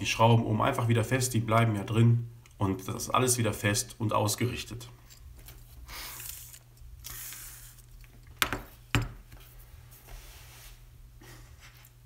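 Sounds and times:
soft rustling: 0:09.4 - 0:12.0.

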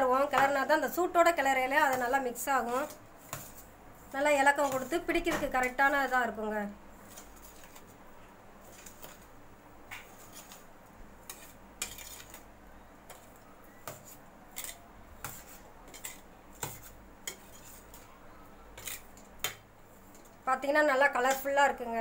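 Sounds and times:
spoon scraping metal pot: 0:11.2 - 0:12.4, 0:13.9 - 0:18.1, 0:18.8 - 0:19.3.

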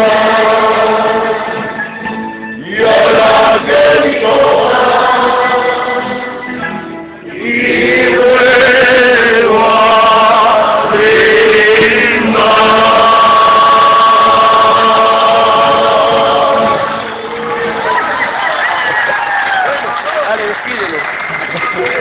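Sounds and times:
men singing together: 0:00.0 - 0:01.8, 0:02.6 - 0:06.6, 0:07.2 - 0:17.2.

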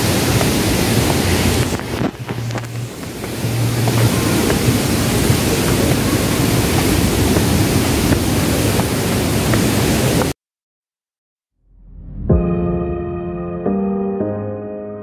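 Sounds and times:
waterfall roaring: 0:00.0 - 0:10.4.

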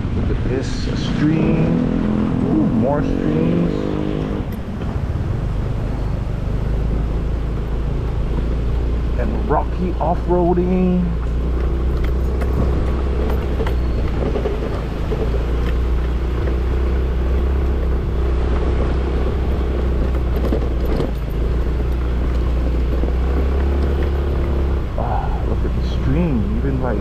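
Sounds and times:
heavy low rumble: 0:00.0 - 0:27.0
knocks and rattles from gravel: 0:11.6 - 0:17.6.

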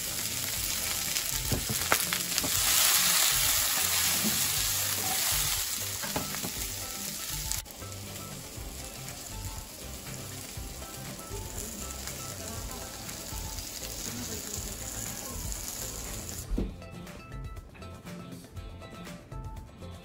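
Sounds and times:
vegetables sizzling in a frying pan: 0:00.0 - 0:16.5
background music: 0:00.0 - 0:20.0
thump: 0:16.5 - 0:16.8.

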